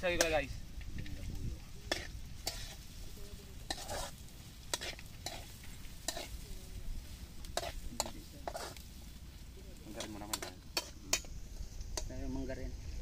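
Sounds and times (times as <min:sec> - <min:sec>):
vegetables sizzling in oil: 0:00.0 - 0:13.0
metal spatula scraping wok: 0:01.8 - 0:06.5, 0:07.5 - 0:09.0, 0:09.9 - 0:12.1.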